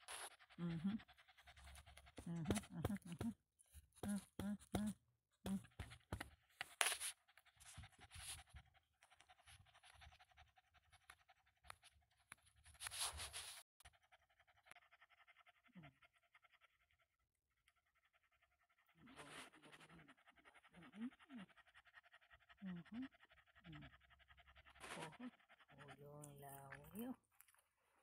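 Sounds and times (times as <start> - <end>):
small dog panting: 0.0 - 27.3.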